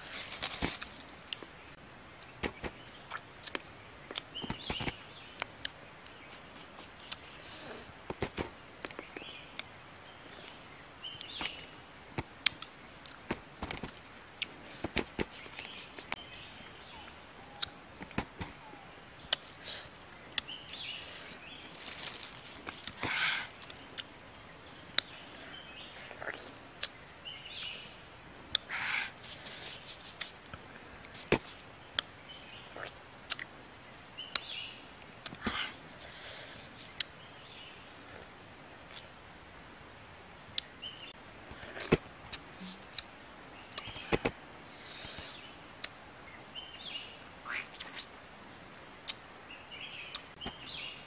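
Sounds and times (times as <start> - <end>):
person chewing and lip smacking: 6.4 - 7.4, 29.9 - 30.4, 32.8 - 33.5, 43.7 - 44.3.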